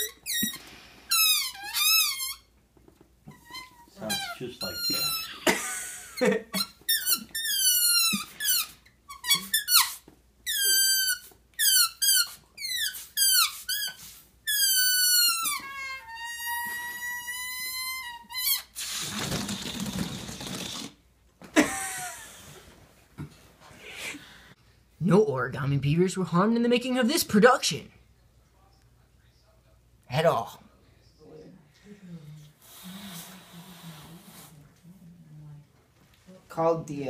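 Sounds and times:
balloon neck squealing: 0.0s - 2.5s, 3.3s - 5.5s, 6.6s - 21.0s
rush of air from balloon: 18.8s - 21.0s.

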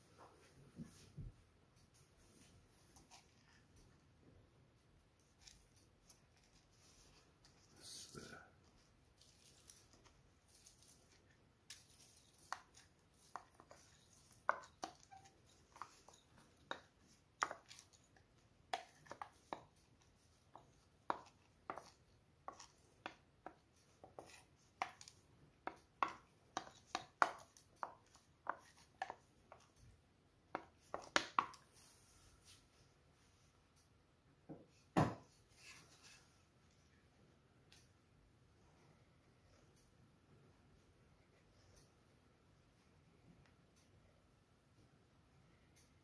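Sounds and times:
wooden spatula tapping a bowl: 12.4s - 18.1s, 18.7s - 19.8s, 20.5s - 29.7s, 30.5s - 31.6s.

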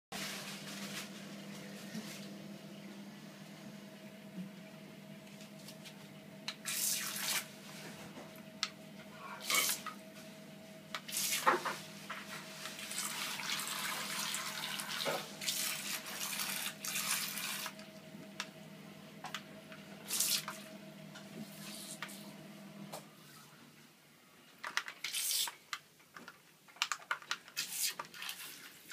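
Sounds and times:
steady low hum: 0.2s - 24.5s
water splashing in bathtub: 12.7s - 17.8s.

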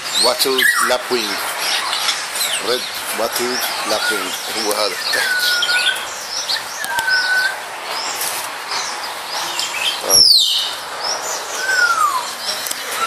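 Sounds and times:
birds chirping: 0.0s - 13.0s
sharp downward-sweeping bird call: 5.0s - 7.6s, 11.4s - 12.4s
downward gliding whistles: 5.1s - 8.1s, 11.4s - 12.4s.

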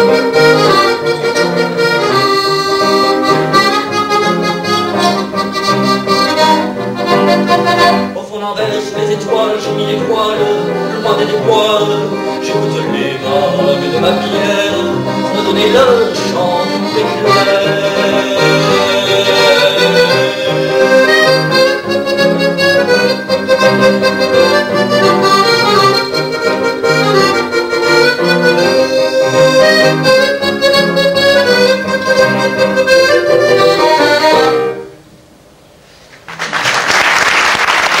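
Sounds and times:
accordion and piano playing: 0.0s - 35.1s
audience applause: 36.2s - 38.0s.

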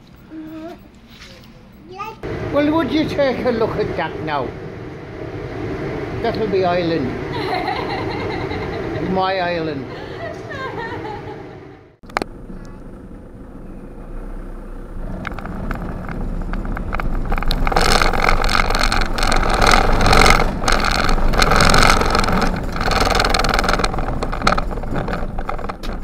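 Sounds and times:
van engine and tyre noise: 0.0s - 26.0s
knocks and rattles over ramp: 15.2s - 26.0s.

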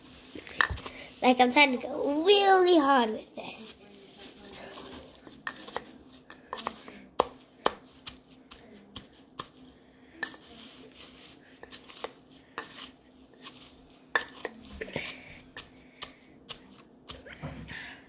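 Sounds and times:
pestle pounding in mortar: 6.6s - 9.6s.

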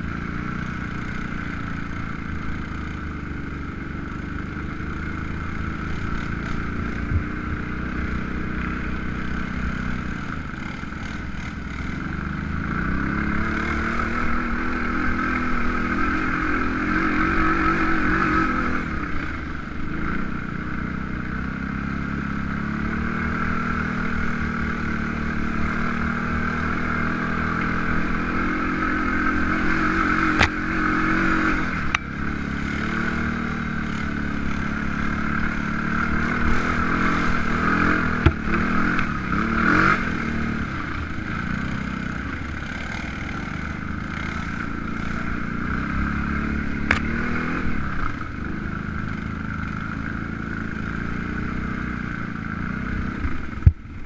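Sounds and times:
quad bike engine running: 0.0s - 54.0s.

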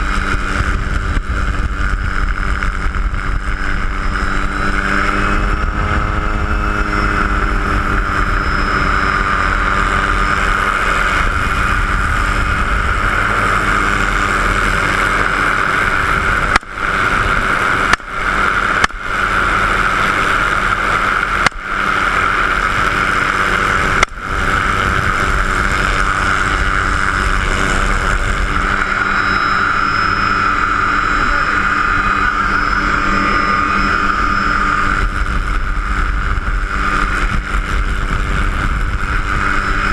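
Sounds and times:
helicopter engine and rotor: 0.0s - 39.9s
loud engine whine: 0.0s - 39.9s.

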